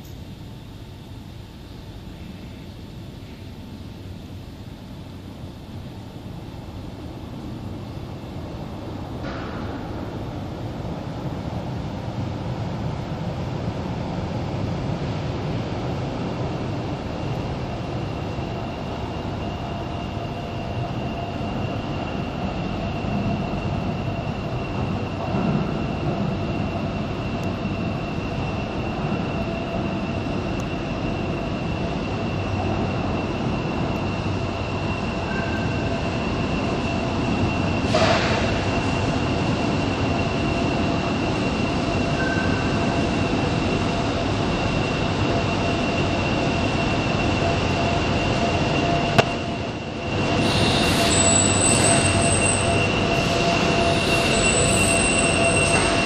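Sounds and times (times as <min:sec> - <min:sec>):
high steady whine: 0:00.0 - 0:55.9
train rumble: 0:00.0 - 0:56.0
sharp bang: 0:49.2 - 0:49.4.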